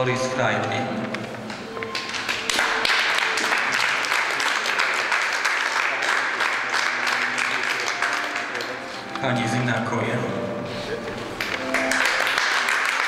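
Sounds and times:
string ensemble: 0.0s - 13.0s
audience applauding: 1.9s - 9.0s, 11.3s - 13.0s.

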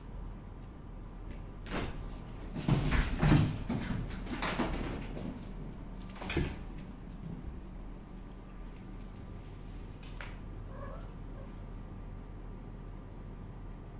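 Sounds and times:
cats thumping and scrabbling on tiles: 1.2s - 11.6s.

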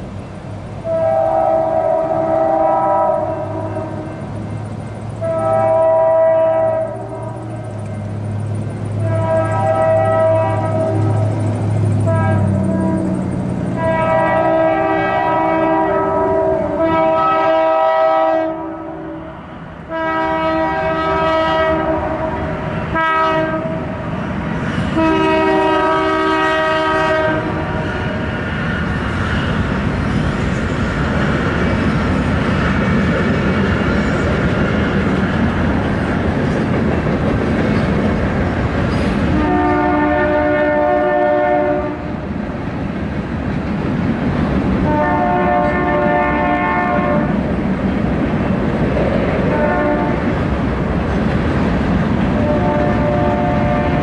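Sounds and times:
train rumbling and rail clatter: 0.0s - 54.0s
locomotive air horn blasts: 0.8s - 4.2s, 5.2s - 7.3s, 9.0s - 11.4s, 12.0s - 19.3s, 19.9s - 24.0s, 24.9s - 27.9s, 39.3s - 42.1s, 44.8s - 47.4s, 49.5s - 50.3s, 52.4s - 54.0s.

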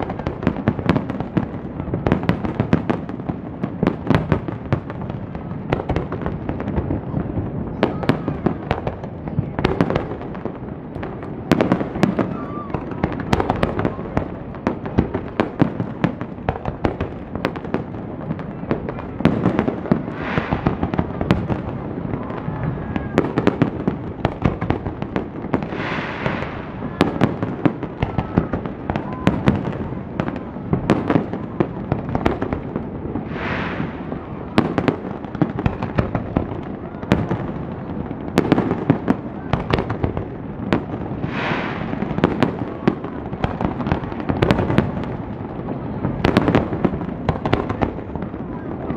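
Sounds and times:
firework bangs and crackling: 0.0s - 48.9s
firework hissing: 19.6s - 23.8s, 25.3s - 30.0s, 32.8s - 36.0s, 40.9s - 44.8s.

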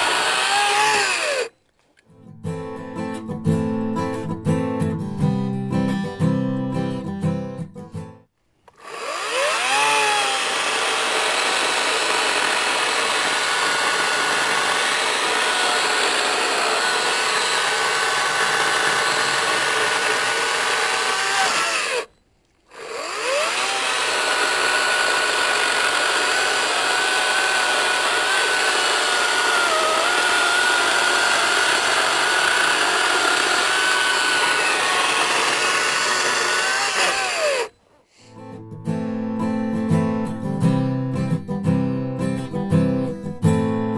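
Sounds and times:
battery chainsaw cutting log: 0.0s - 1.5s, 8.7s - 22.1s, 22.7s - 37.8s.

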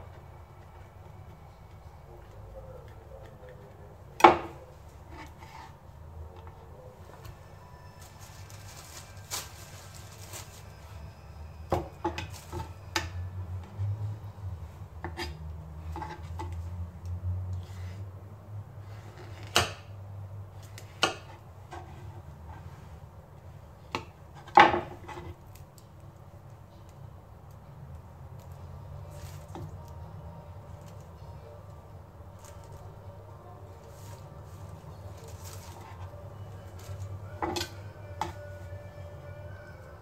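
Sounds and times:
rustling: 4.7s - 11.6s, 28.4s - 40.0s.

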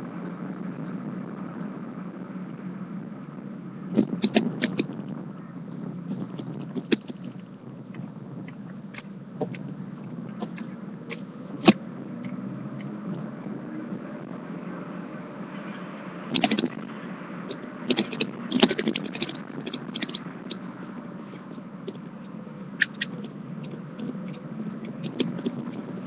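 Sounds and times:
car road and engine noise: 0.0s - 26.0s.

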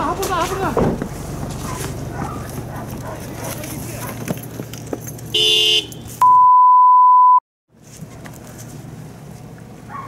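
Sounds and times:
single-pitch bleep: 6.2s - 7.4s.

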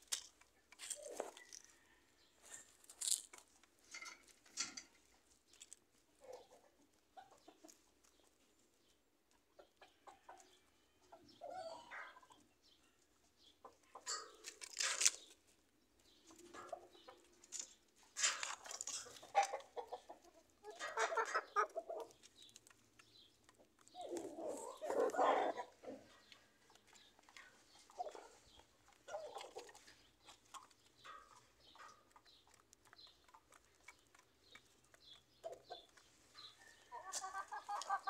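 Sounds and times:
chickens clucking: 0.0s - 38.0s.

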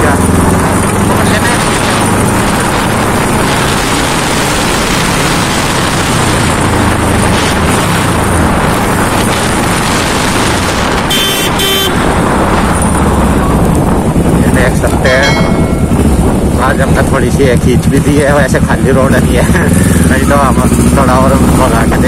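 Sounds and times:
motorcycle engine running: 0.0s - 22.0s
wind rush on microphone: 0.0s - 22.0s
horn toots: 10.9s - 12.4s.

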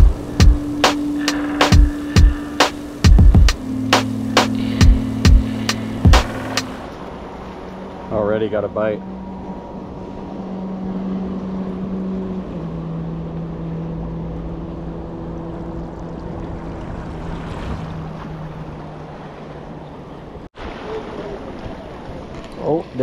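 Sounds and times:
steady engine hum: 0.0s - 20.5s
water noise: 0.0s - 23.0s
wind: 0.0s - 23.0s.

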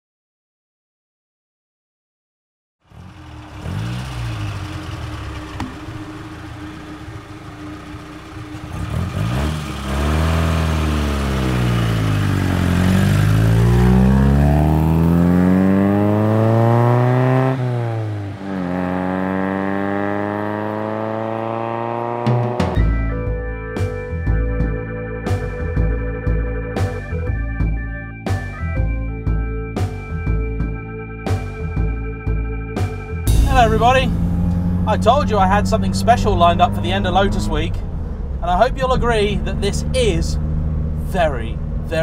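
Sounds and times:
car engine revving: 2.8s - 22.9s, 32.8s - 42.0s.

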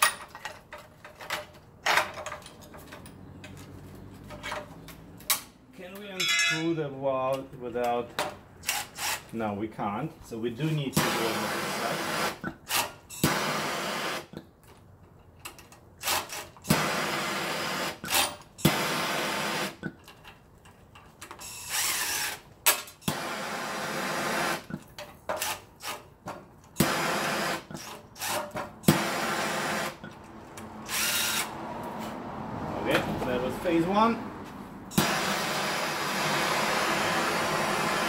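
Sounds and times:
impact driver bursts: 11.0s - 14.3s, 16.0s - 19.8s, 21.4s - 22.4s, 23.0s - 24.7s, 26.8s - 30.0s, 30.8s - 31.5s, 34.9s - 38.0s.

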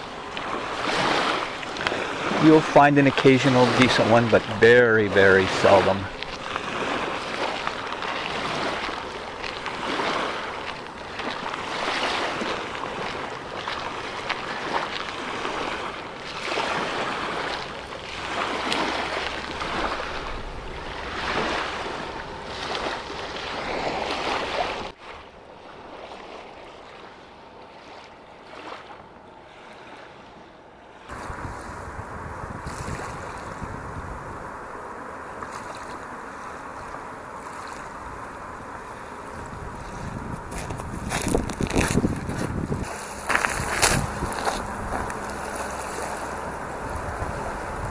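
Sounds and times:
small waves lapping on shore: 0.0s - 47.9s
low rumble: 31.1s - 47.9s
wind blowing across microphone: 31.1s - 47.9s.

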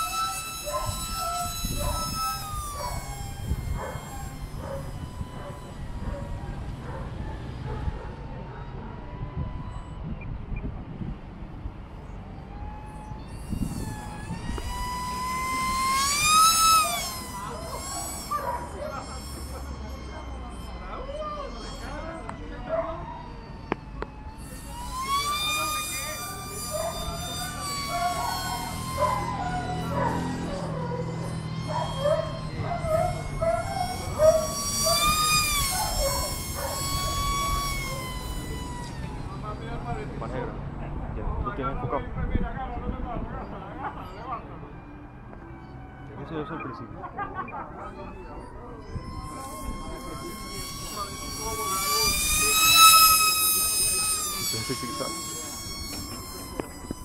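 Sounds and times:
short calls: 0.0s - 7.8s, 11.9s - 40.4s, 43.8s - 57.0s
wind buffeting microphone: 0.0s - 18.6s, 22.7s - 44.1s
model jet fan whining: 0.0s - 57.0s.

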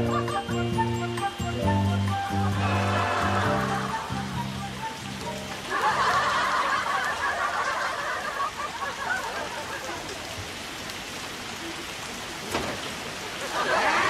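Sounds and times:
heavy rain pouring: 0.0s - 14.0s
audience laughter: 2.4s - 4.2s, 5.7s - 10.3s, 13.3s - 14.0s.

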